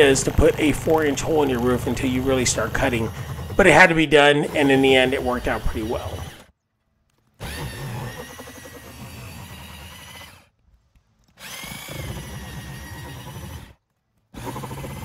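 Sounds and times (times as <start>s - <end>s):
jigsaw motor whine: 0.0s - 6.5s, 7.3s - 10.6s, 11.3s - 15.0s
saw blade rasping shingles: 0.0s - 6.5s.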